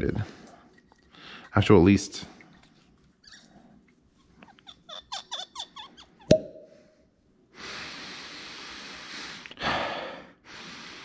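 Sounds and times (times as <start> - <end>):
cork pop: 6.3 - 6.7.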